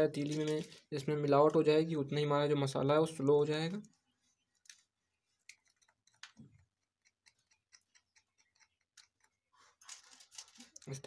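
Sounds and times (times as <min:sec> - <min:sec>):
tweezers clicking and scraping: 0:04.5 - 0:10.9.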